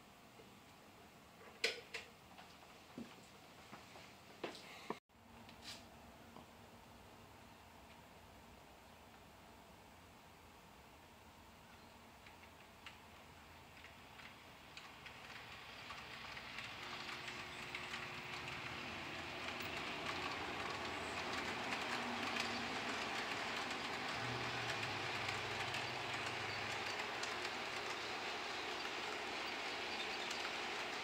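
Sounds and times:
wheels rattling on rails: 12.2s - 31.0s
model train motor humming: 12.3s - 31.0s.

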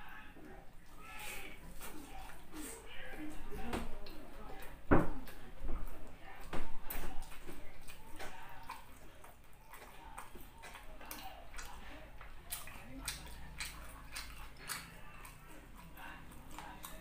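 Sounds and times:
close chewing mouth smacks: 4.0s - 17.0s.

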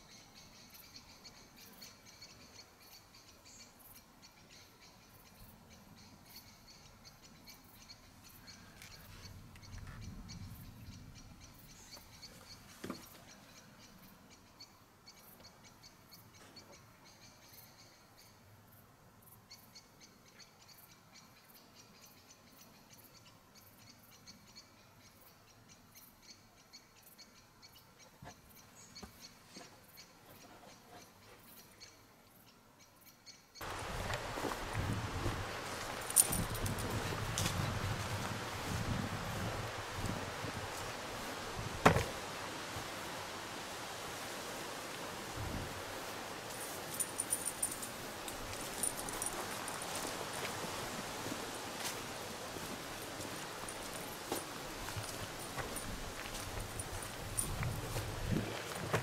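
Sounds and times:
insects chirping: 33.6s - 58.0s.

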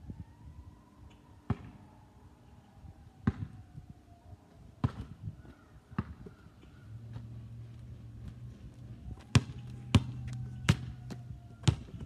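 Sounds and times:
basketball bouncing on concrete: 3.2s - 3.6s, 4.8s - 5.1s, 6.0s - 6.4s, 9.2s - 12.0s.

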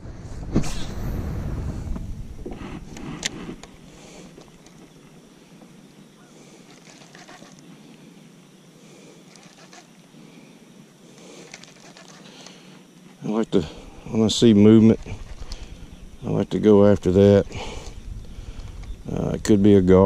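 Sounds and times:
wind rumble on microphone: 0.0s - 4.5s, 13.8s - 20.0s
open-air lake ambience: 0.0s - 20.0s.

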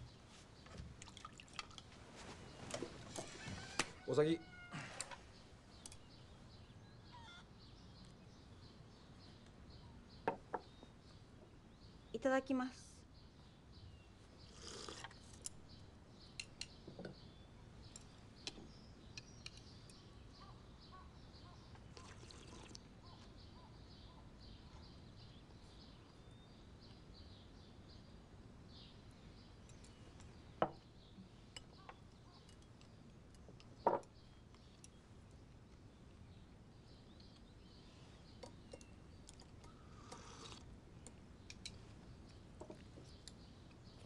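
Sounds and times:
sipping soup: 21.9s - 22.9s, 40.0s - 40.6s.

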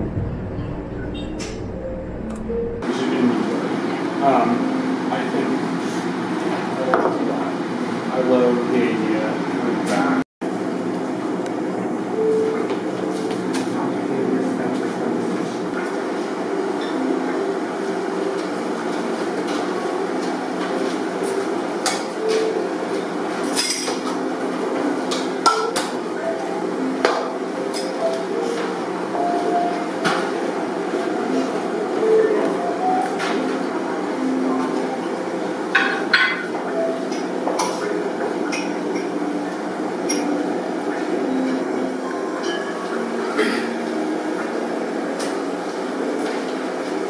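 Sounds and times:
steady room hum: 0.0s - 47.0s
faint murmur of voices: 12.2s - 47.0s.

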